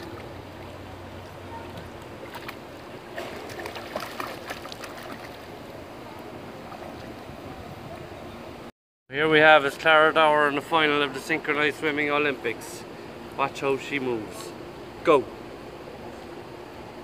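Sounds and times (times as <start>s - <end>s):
pool water splashing: 0.0s - 8.6s.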